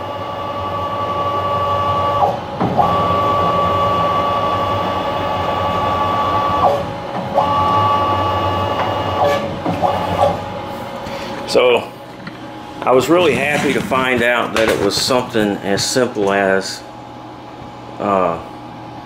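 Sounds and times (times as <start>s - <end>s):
stepper motor whine: 0.0s - 11.5s.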